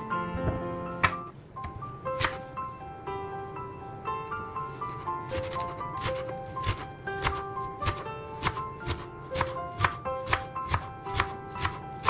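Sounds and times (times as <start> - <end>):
background music: 0.0 - 12.0
knife chopping on wooden board: 5.4 - 11.8.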